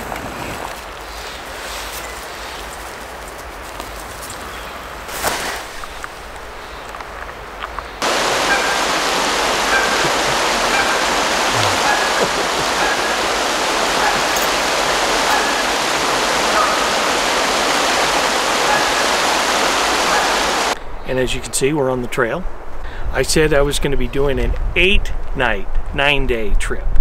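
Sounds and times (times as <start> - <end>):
creek water rushing: 8.0 - 20.8.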